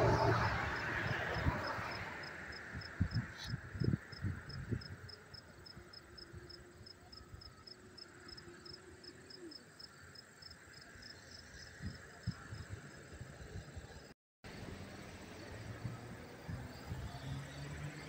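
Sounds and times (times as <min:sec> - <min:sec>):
insect chirping: 0:00.8 - 0:14.1.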